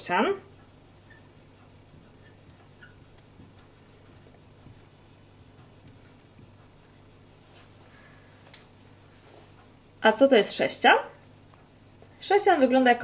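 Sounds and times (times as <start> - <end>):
marker squeaking on glass board: 1.1 - 4.9, 5.9 - 7.1.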